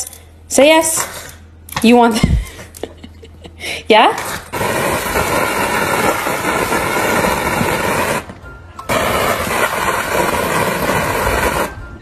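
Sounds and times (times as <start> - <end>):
hose water spraying on glass: 4.4 - 11.8.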